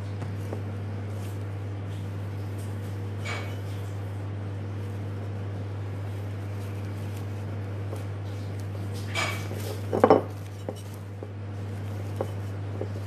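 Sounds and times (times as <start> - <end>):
steady low hum: 0.0 - 13.0
cloth and ribbon rustling: 4.7 - 13.0.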